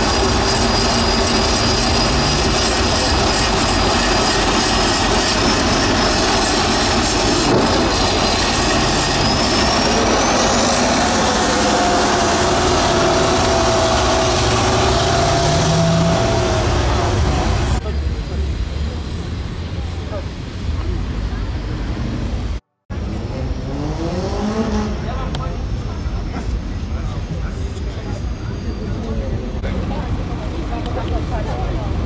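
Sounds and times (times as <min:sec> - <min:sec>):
high rising whistle: 0:00.0 - 0:17.8
diesel truck engine running hard: 0:00.0 - 0:32.0.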